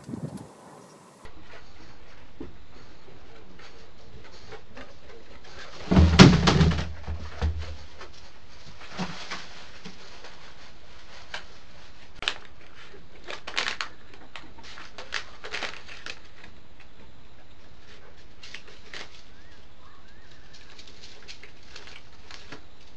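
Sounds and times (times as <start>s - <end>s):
claws scratching on wooden boards: 1.2s - 5.9s.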